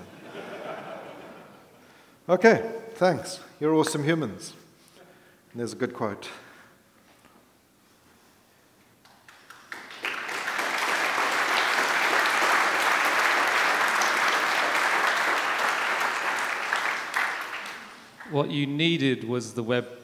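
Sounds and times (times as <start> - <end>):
audience applauding: 9.1 - 18.5.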